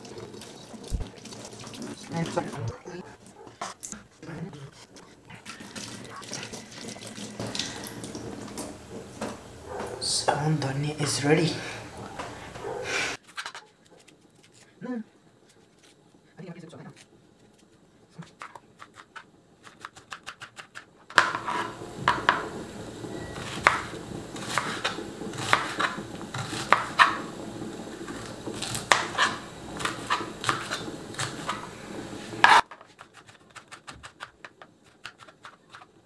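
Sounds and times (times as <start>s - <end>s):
knife chopping on cutting board: 23.5s - 27.2s.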